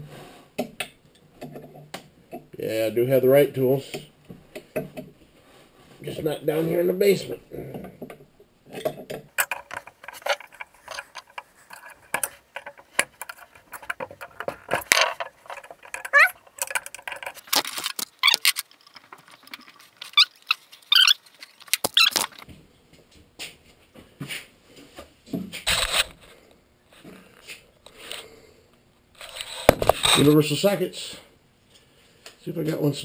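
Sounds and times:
tools clattering: 8.7s - 22.4s
short metallic squeaks: 16.1s - 16.4s, 20.1s - 21.2s.

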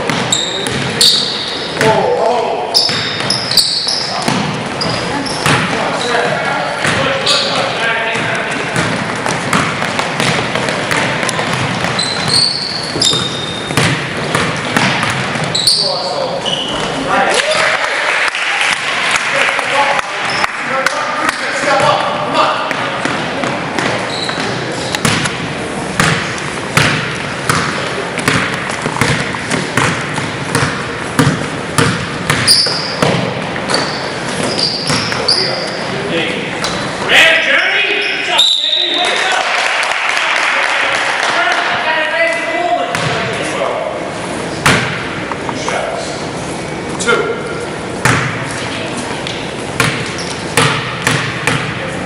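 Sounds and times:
sneakers squeaking: 0.0s - 17.7s, 20.0s - 39.0s, 42.9s - 43.5s, 44.3s - 52.0s
basketball bouncing on hardwood: 5.4s - 5.8s, 8.2s - 12.4s, 13.0s - 15.5s, 26.0s - 33.9s, 42.9s - 43.2s, 49.8s - 51.7s.

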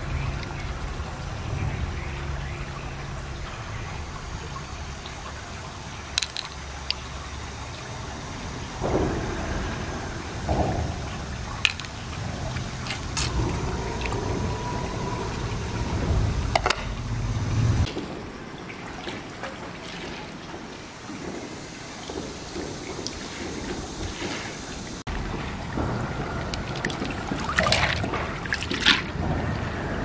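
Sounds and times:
stream trickling: 0.0s - 30.0s
wet handling of shells on stones: 6.2s - 7.0s, 11.6s - 13.4s.

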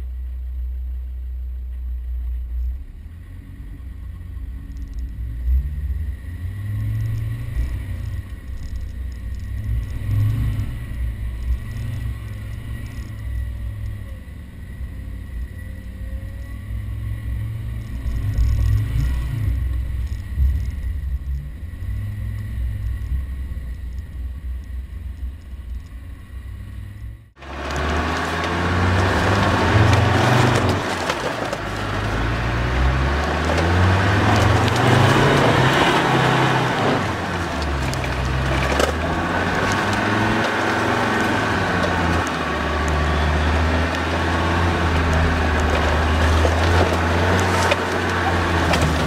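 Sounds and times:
off-road vehicle engine rumble: 0.0s - 49.0s
vehicle jolts: 27.4s - 49.0s.

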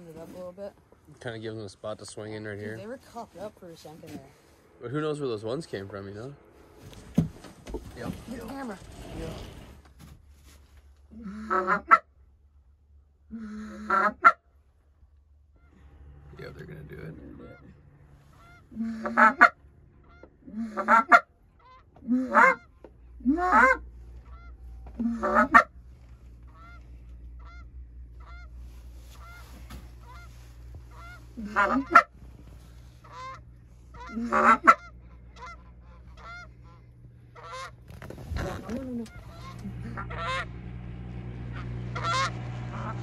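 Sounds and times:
goose call honks: 11.1s - 12.1s, 13.4s - 14.4s, 15.6s - 25.8s, 26.4s - 32.2s, 32.9s - 40.8s, 41.4s - 43.0s
distant geese honking: 11.2s - 12.2s, 13.6s - 14.5s, 15.4s - 43.0s.

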